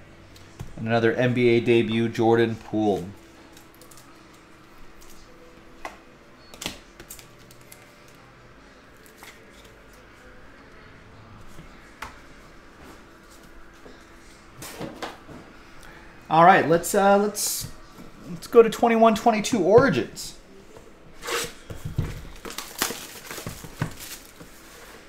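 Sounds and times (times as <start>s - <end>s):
faint steady hum: 0.0s - 21.1s.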